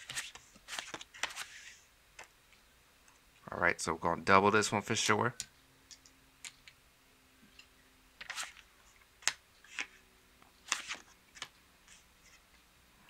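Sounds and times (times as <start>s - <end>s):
playing cards dealt: 0.0s - 2.3s, 8.2s - 10.0s, 10.6s - 12.4s.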